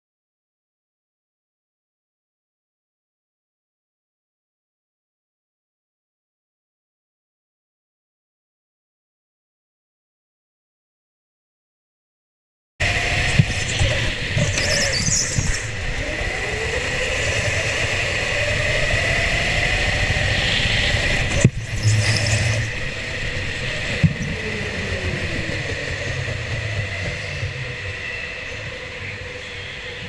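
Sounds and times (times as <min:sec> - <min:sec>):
go-kart engine revving: 0:12.8 - 0:30.0
steady high whine: 0:12.8 - 0:30.0.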